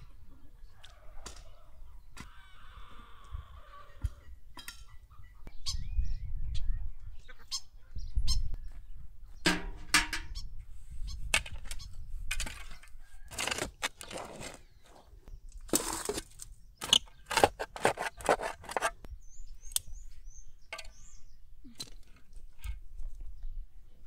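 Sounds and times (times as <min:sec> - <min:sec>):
shovel scraping stony soil: 0:11.4 - 0:19.1.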